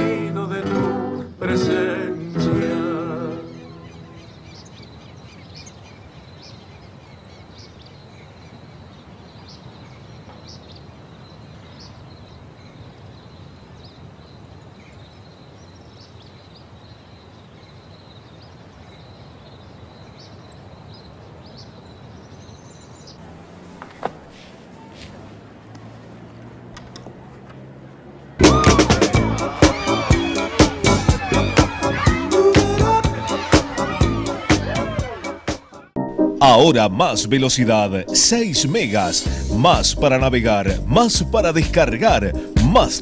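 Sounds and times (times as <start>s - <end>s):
background hiss: 0.0s - 26.6s.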